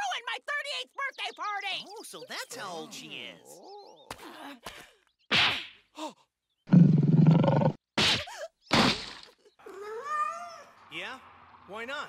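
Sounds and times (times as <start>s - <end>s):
cartoon slap: 5.3s - 5.8s, 8.0s - 9.4s.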